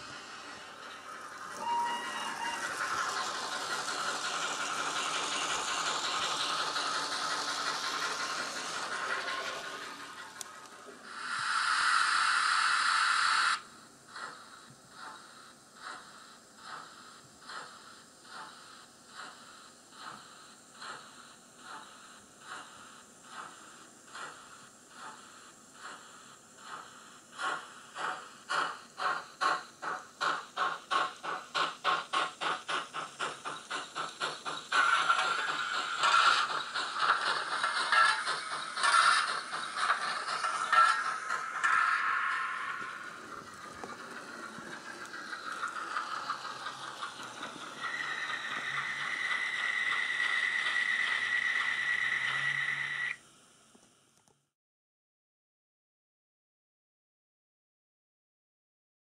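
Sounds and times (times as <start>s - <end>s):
hissing steam-engine sound: 0.0s - 53.8s.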